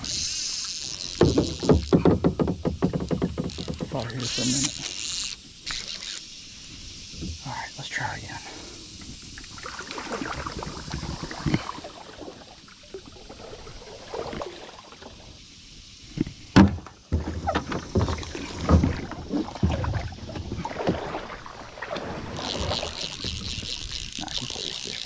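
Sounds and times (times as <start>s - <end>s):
hollow knocks against hull: 1.1s - 4.2s, 16.2s - 21.3s
paddle swishing through water: 9.5s - 15.2s, 17.1s - 25.0s.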